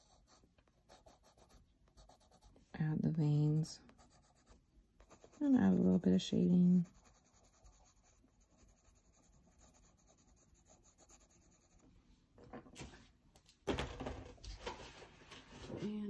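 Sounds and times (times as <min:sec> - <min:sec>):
pencil scratching on paper: 0:00.0 - 0:02.7, 0:03.9 - 0:06.0, 0:06.8 - 0:11.9
rustling and handling noises: 0:12.4 - 0:16.0.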